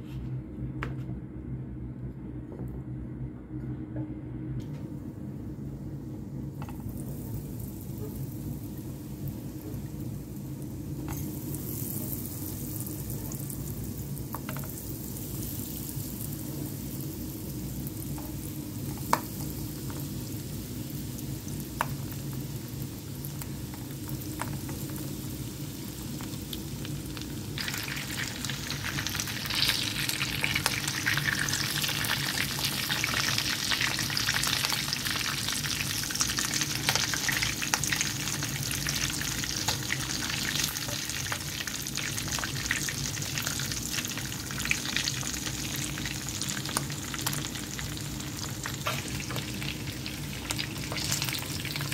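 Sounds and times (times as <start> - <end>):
steady low hum: 0.0 - 51.9
chicken sizzling in hot oil: 6.7 - 51.9.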